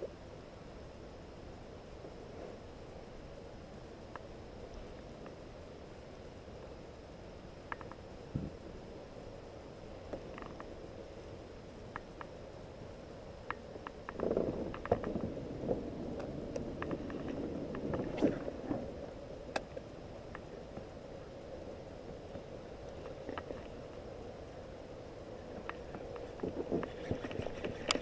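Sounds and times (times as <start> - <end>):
small knocks and clicks: 7.7 - 8.6, 13.4 - 15.3.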